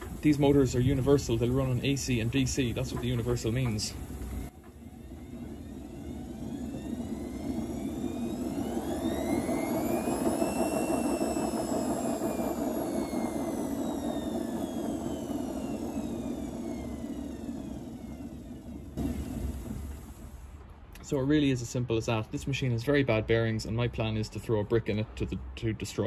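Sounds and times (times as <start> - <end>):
motor whine rising and falling: 0.0 - 20.6
washing machine rumble: 0.0 - 21.8.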